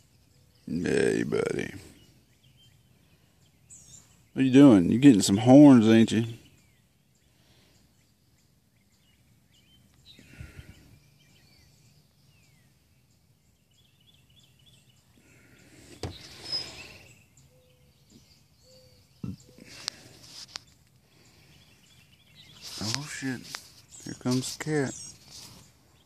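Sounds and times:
small birds chirping: 0.0s - 26.0s
rustles and knocks: 15.9s - 16.4s.

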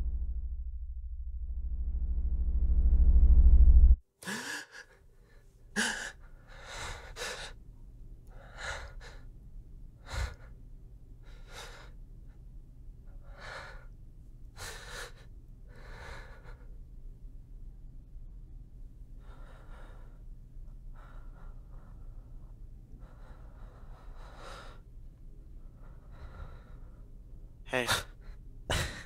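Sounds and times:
low synth drone: 0.0s - 4.0s
faint low hum: 0.0s - 29.0s
heavy breaths: 10.0s - 10.6s, 19.2s - 24.9s, 25.5s - 27.3s.

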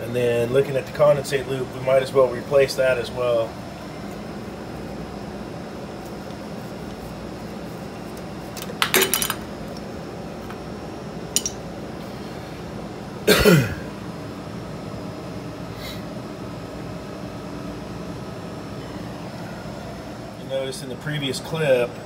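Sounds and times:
background hum: 0.0s - 22.0s
metal tools clinking: 8.9s - 9.4s.

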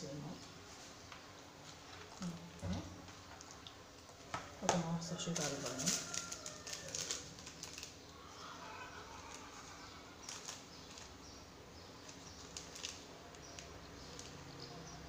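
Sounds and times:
paper sachet crackling: 4.6s - 14.6s.

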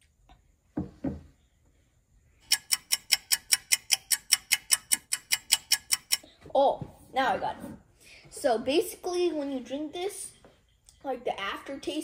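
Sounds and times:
rapid clicking of glass: 2.4s - 6.2s.

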